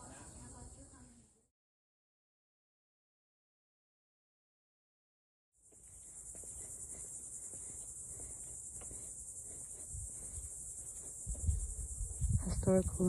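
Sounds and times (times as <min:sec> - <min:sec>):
insects chorus: 0:00.0 - 0:01.3, 0:05.6 - 0:13.0.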